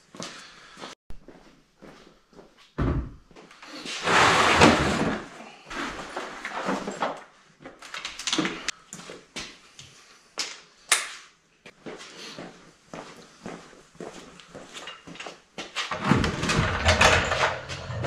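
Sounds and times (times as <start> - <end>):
plastic tool case clattering: 15.9 - 18.0.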